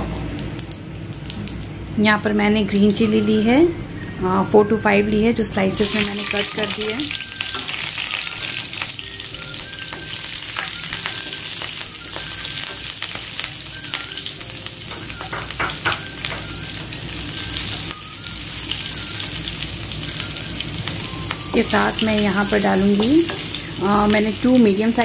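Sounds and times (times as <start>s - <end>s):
spices sizzling in hot oil: 5.7s - 25.0s.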